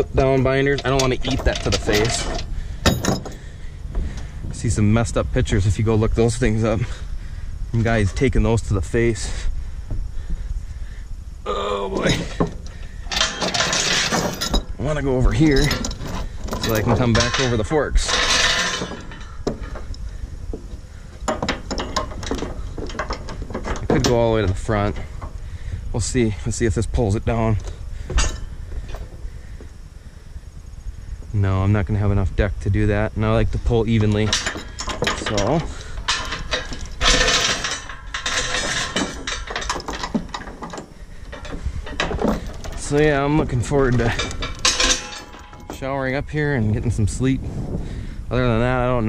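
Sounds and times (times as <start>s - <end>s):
metal chain rattling and clinking: 0.0s - 5.0s, 12.0s - 25.4s, 27.3s - 29.2s, 33.8s - 46.8s.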